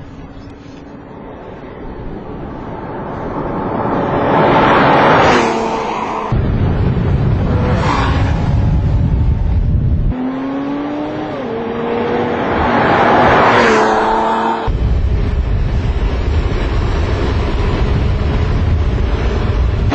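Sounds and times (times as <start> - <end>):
car engine accelerating hard: 2.8 - 19.9
heavy low rumble: 6.1 - 10.2, 14.6 - 19.9.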